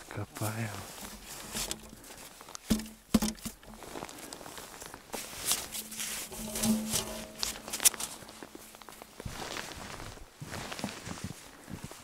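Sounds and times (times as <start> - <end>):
snow crunching and scraping: 0.0 - 2.6, 3.7 - 12.0
sharp knocks: 2.6 - 3.7.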